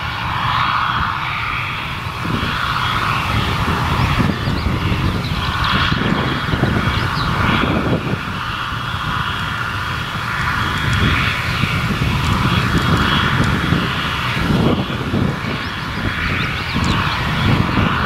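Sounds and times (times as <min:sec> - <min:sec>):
diesel locomotive engine running: 0:00.0 - 0:18.0.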